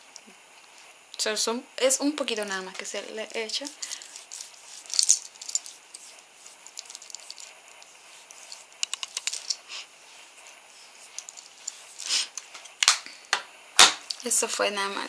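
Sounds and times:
fingertips patting skin: 3.4 - 9.4.

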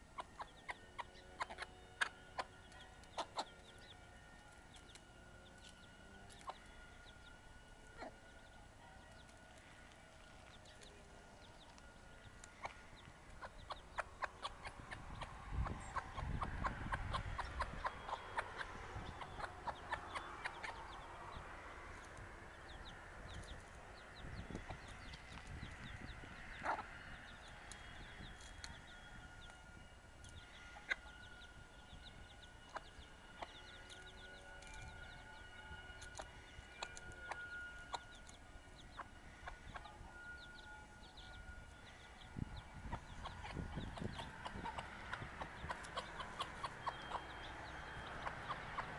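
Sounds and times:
hen clucking: 0.0 - 3.7, 12.6 - 21.0, 26.5 - 27.0, 42.8 - 48.9
chicks peeping: 0.0 - 48.9.

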